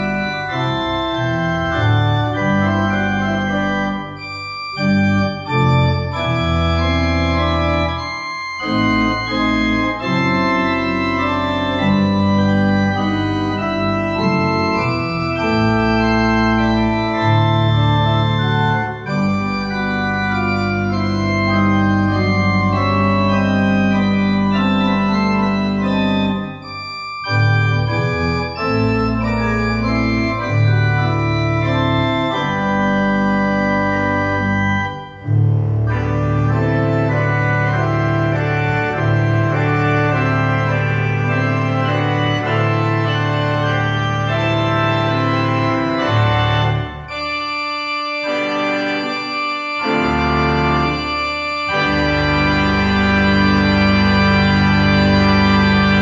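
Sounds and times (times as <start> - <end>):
church organ chords: 0.0 - 56.0.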